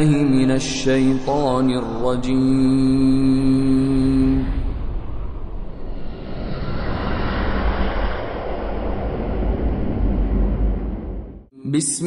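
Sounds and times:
whoosh and rumble effect: 0:01.9 - 0:11.5.

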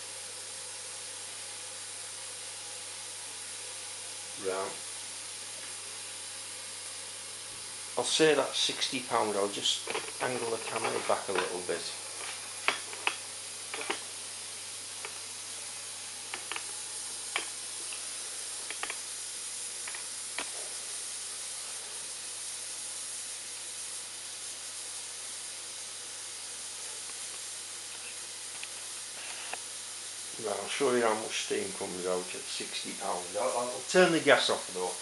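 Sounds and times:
gas burner hissing: 0:00.0 - 0:35.0
handling clicks and knocks: 0:09.8 - 0:11.6, 0:12.2 - 0:14.0, 0:18.7 - 0:19.0.

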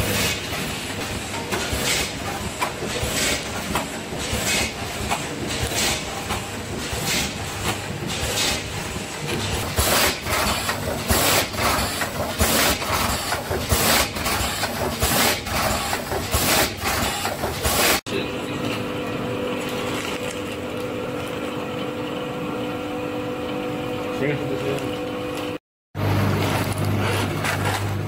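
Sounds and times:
packing machine clatter: 0:00.0 - 0:18.0, 0:26.1 - 0:28.0.

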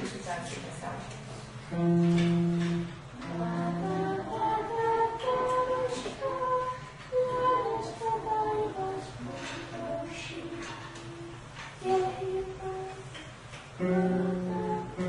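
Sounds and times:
person singing unaccompanied: 0:01.7 - 0:15.0.

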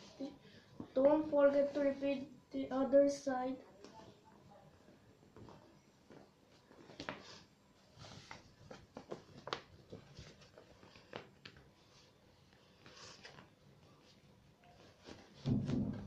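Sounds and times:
paper crinkling and rustling: 0:06.7 - 0:15.8.

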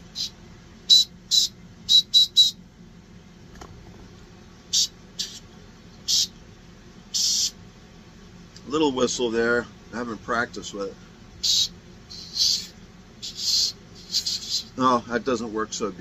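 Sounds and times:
small whistle toots: 0:00.2 - 0:02.6, 0:04.7 - 0:05.4, 0:06.0 - 0:06.3, 0:07.1 - 0:07.6, 0:11.4 - 0:14.7.

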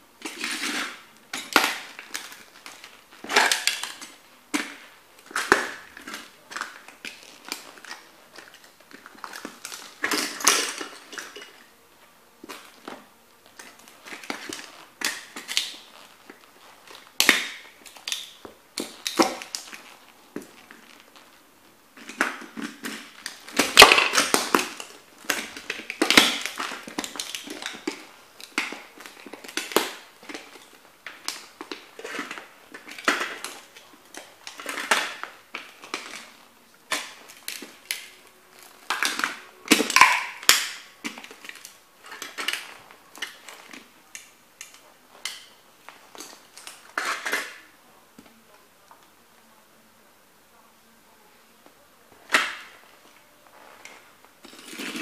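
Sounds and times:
boots crushing toy car: 0:21.9 - 0:48.3.

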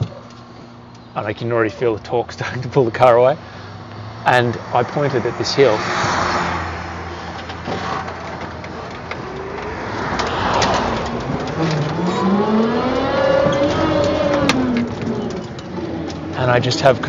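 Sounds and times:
electric drivetrain whine: 0:04.8 - 0:17.0.

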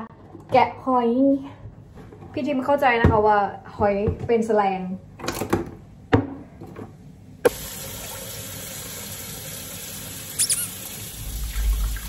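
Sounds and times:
water running into sink: 0:07.5 - 0:12.0.

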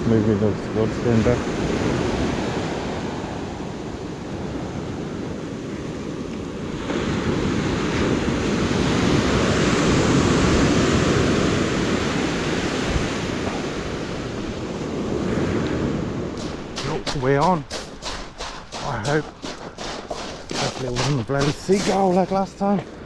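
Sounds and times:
surf breaking on sand beach: 0:05.9 - 0:22.8.

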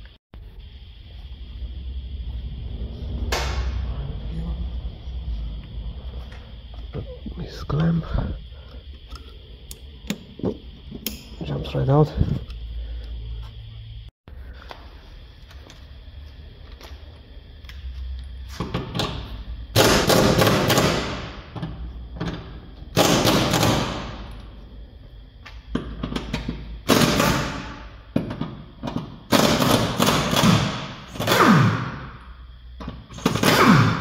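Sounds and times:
impact wrench hammering: 0:19.7 - 0:21.7, 0:22.9 - 0:24.2, 0:26.8 - 0:32.1, 0:33.1 - 0:34.0.

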